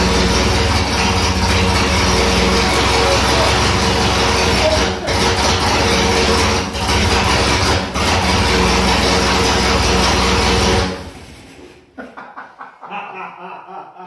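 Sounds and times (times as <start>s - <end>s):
car engine running: 0.0s - 11.1s.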